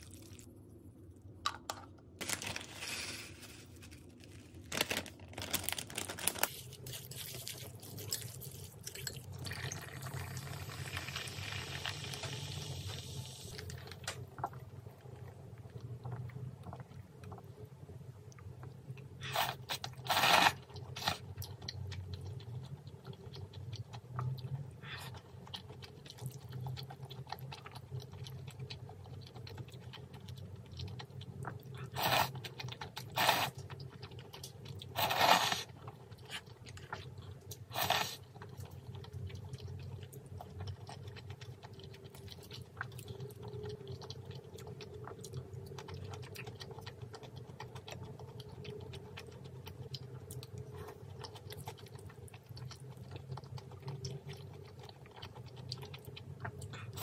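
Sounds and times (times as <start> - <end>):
soft chewing: 6.4 - 9.4, 13.5 - 57.0
noodle slurps: 19.2 - 21.2, 31.8 - 32.5, 33.1 - 33.6, 34.9 - 35.7.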